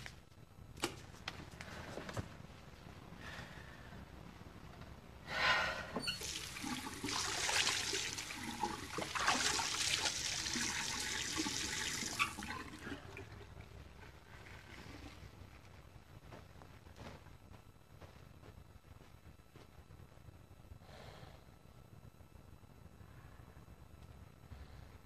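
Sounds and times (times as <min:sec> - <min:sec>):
tap water running into sink: 0:06.0 - 0:13.4.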